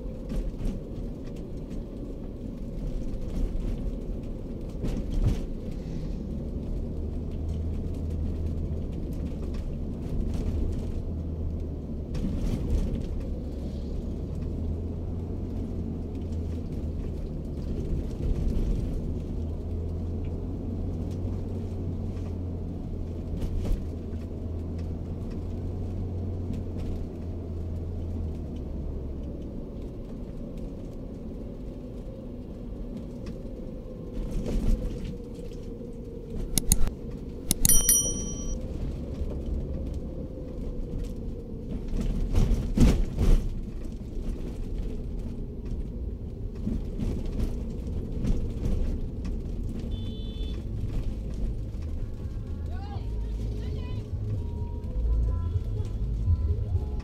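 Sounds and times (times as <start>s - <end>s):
car engine and road noise: 0.0s - 57.0s
button click: 36.6s - 36.9s, 37.5s - 38.6s
short bell-like chime: 37.5s - 38.6s.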